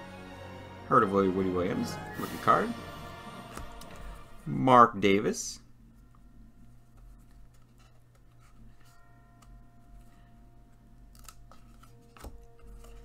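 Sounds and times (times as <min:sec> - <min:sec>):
cardboard cards scraping: 0:11.1 - 0:13.0.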